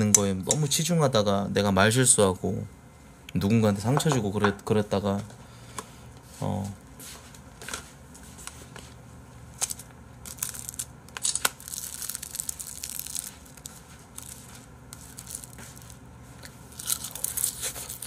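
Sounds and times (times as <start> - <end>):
crinkling and tearing: 9.6 - 18.0.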